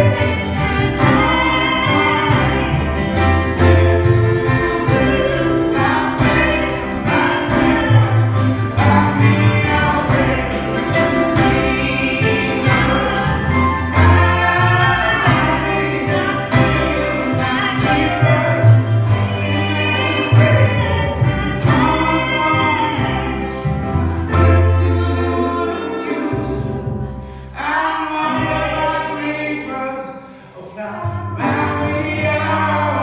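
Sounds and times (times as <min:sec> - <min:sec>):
double bass: 0:00.0 - 0:33.0
guitar: 0:00.0 - 0:33.0
person singing: 0:00.0 - 0:33.0
piano: 0:00.0 - 0:33.0.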